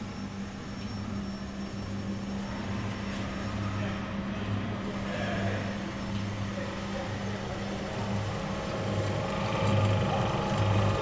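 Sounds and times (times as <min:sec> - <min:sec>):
coffee roaster machine hum: 0:00.0 - 0:11.0
low throb: 0:07.6 - 0:11.0.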